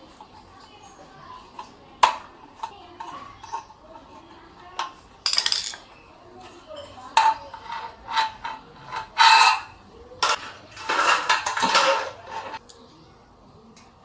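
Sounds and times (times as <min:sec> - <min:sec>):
metal rattling scrape: 0:07.4 - 0:12.6.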